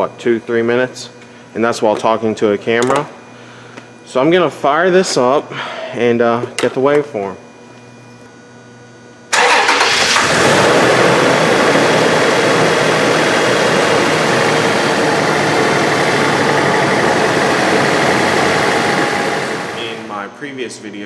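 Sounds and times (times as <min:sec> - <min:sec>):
car engine cranking and idling: 0:09.3 - 0:20.0.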